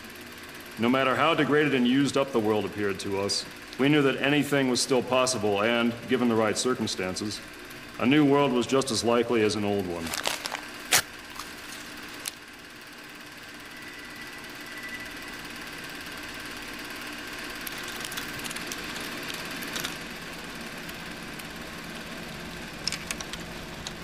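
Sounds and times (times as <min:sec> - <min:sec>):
film projector whirring: 0:00.0 - 0:24.0
projector clicks: 0:22.8 - 0:24.0.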